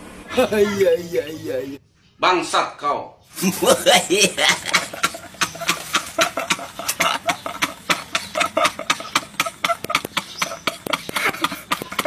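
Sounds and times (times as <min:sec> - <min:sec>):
men laughing hard: 0:03.4 - 0:12.0.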